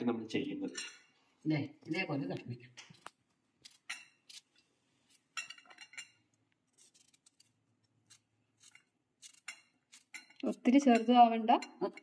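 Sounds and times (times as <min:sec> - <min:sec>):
knife cutting mango: 0:06.6 - 0:10.4.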